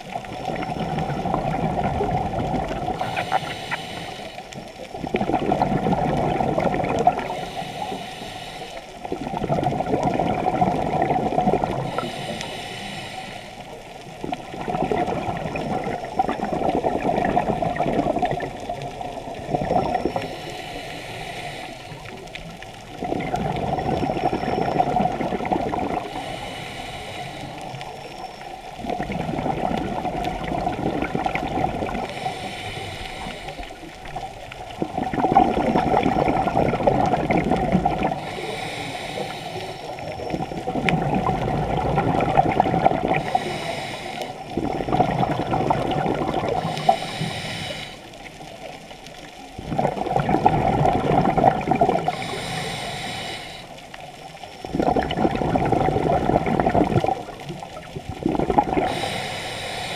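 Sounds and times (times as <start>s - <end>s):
exhaled air bubbling: 0.0s - 59.9s
regulator inhale hiss: 2.9s - 4.8s, 7.2s - 9.1s, 11.8s - 13.9s, 20.0s - 22.4s, 26.0s - 28.4s, 31.8s - 34.2s, 38.1s - 40.1s, 43.1s - 44.5s, 46.4s - 48.6s, 52.0s - 54.3s, 58.8s - 59.9s.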